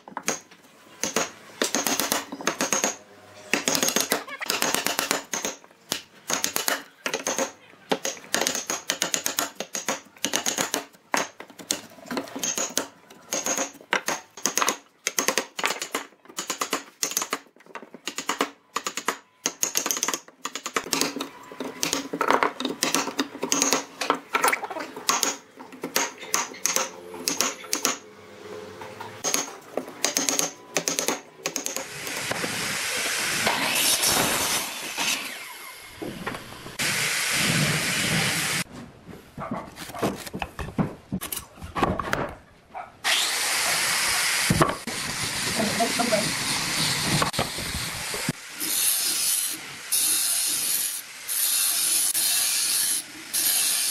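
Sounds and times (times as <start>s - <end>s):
woodworking tools striking wood: 0.0s - 28.0s, 28.9s - 32.5s, 44.4s - 44.9s.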